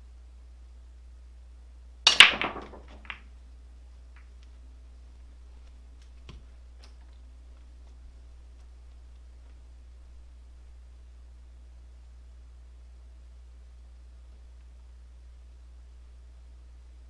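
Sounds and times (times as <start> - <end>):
pool cue strike: 2.1 - 3.3
billiard balls clacking: 2.1 - 3.4.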